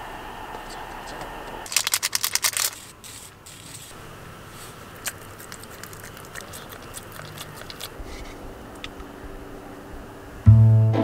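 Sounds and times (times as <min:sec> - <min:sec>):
small dog chewing: 0:04.6 - 0:09.0.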